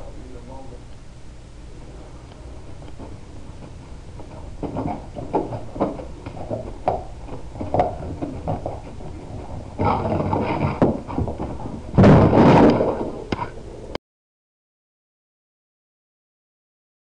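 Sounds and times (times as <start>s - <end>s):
dog clattering into wooden board: 4.2s - 13.2s.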